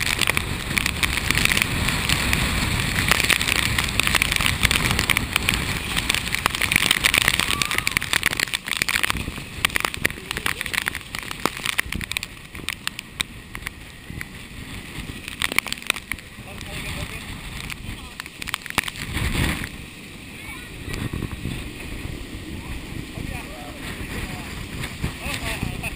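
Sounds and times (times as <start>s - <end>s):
raindrops ticking on camera housing: 0.0s - 20.0s
heavy rain and wind: 0.0s - 25.9s.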